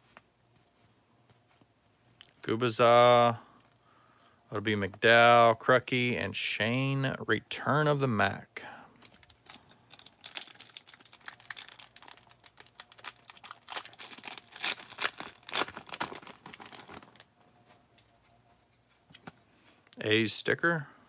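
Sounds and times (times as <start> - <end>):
foil wrapper crinkling: 9.0 - 17.3.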